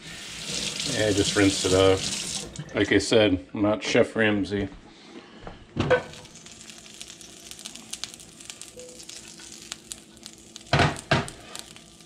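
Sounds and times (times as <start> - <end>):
butter sizzling in a skillet: 6.0 - 12.0
small crackling pops: 6.1 - 12.0.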